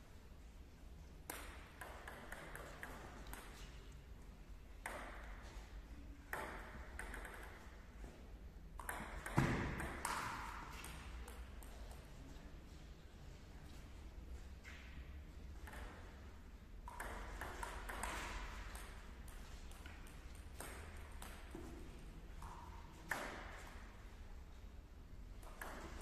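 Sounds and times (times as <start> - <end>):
ping-pong ball hits: 4.8 - 5.4, 6.3 - 7.7, 8.8 - 11.8, 16.8 - 21.8, 25.4 - 26.0.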